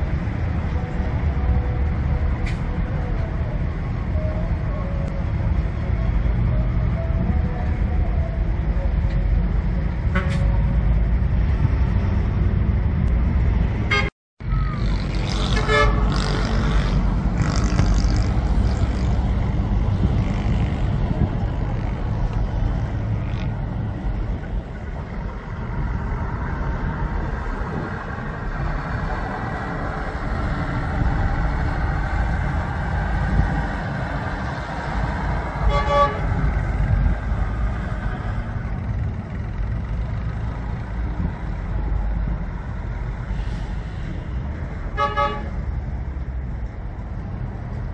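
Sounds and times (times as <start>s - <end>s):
diesel coach engine rumble: 0.0s - 47.9s
pulsing horn toots: 10.0s - 10.7s, 13.8s - 14.1s, 15.2s - 18.8s, 35.5s - 37.0s, 44.9s - 45.6s.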